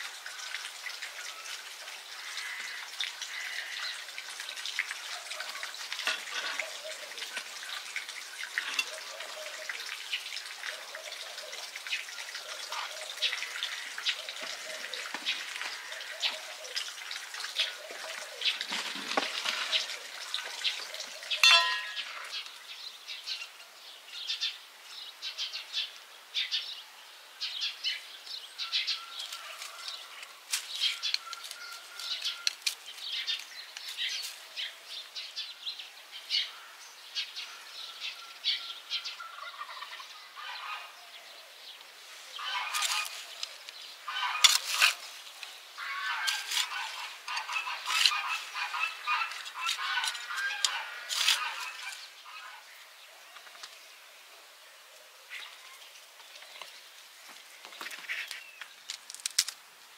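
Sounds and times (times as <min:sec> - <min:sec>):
birds chirping: 0:01.1 - 0:26.7, 0:27.5 - 0:59.2
hand trowel digging soil: 0:18.5 - 0:19.9, 0:42.4 - 0:52.1.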